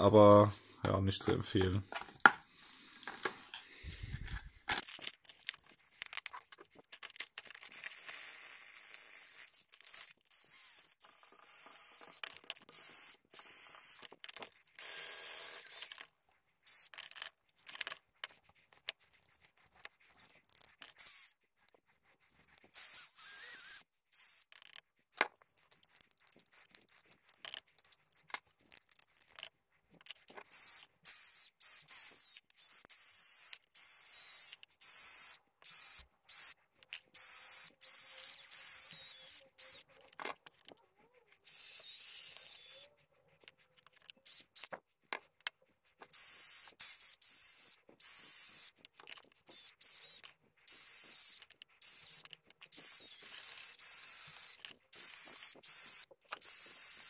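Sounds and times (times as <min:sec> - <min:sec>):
metal parts clicking: 0:03.0 - 0:08.3, 0:16.8 - 0:21.2, 0:36.8 - 0:40.8, 0:48.6 - 0:50.3.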